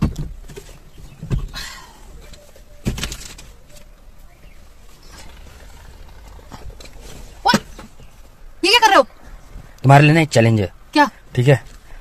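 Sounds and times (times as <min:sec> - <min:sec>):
rustling: 0:00.0 - 0:08.5.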